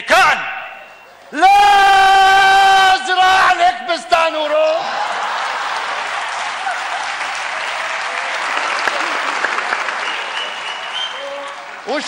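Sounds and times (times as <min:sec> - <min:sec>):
audience applauding: 0:04.8 - 0:12.0.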